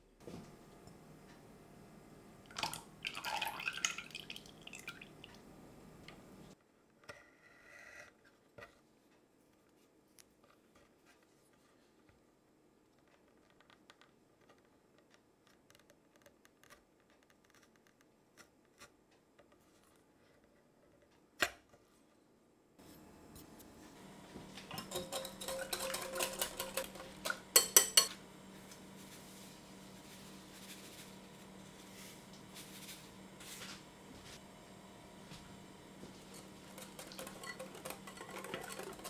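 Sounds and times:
steady low hum: 22.3s - 39.0s.

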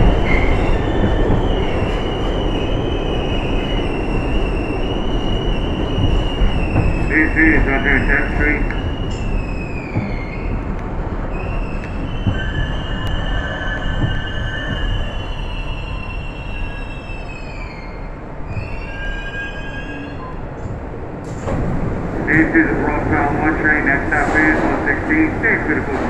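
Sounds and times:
subway car rumbling on rails: 0.0s - 26.0s
wheels squealing: 11.3s - 20.4s.

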